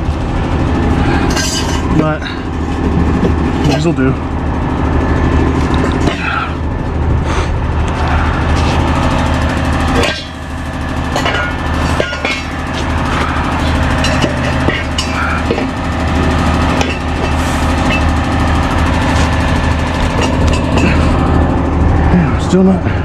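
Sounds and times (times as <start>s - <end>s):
truck engine running: 0.0s - 23.0s.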